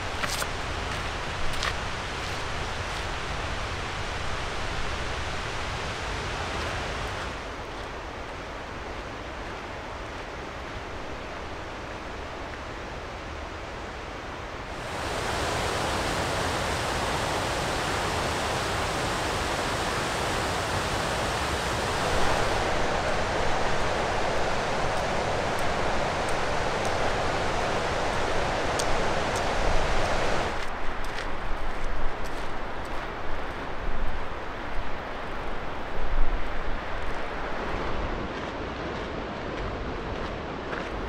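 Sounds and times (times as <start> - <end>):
water rushing over boulders: 14.7 - 30.8.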